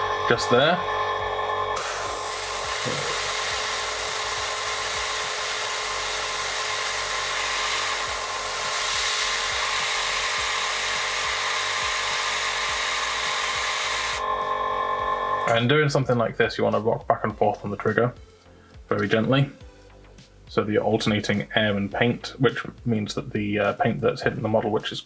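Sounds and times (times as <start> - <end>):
airbrush hissing: 1.8 - 14.3.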